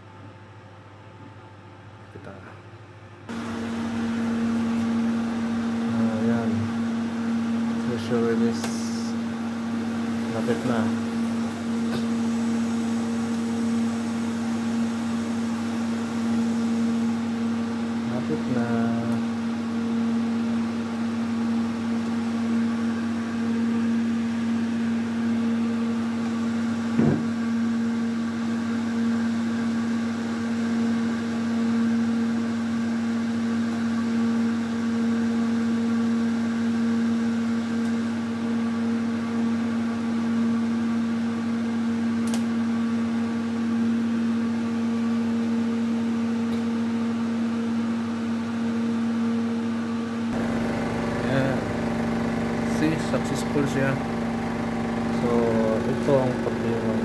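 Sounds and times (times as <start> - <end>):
autoclave machine hum: 3.2 - 57.0
short knock: 27.0 - 27.3.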